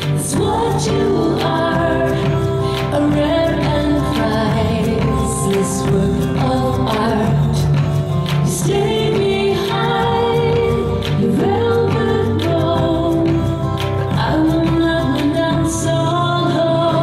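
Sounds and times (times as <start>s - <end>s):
acoustic guitar: 0.0s - 17.0s
person singing: 0.0s - 17.0s.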